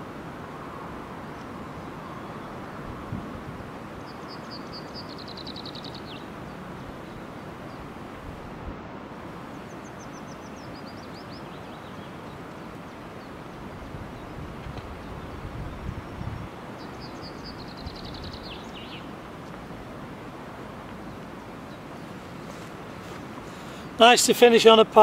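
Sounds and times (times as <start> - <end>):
outdoor background noise: 0.0 - 25.0
small songbird singing: 4.0 - 7.8, 9.4 - 12.6, 15.0 - 19.6.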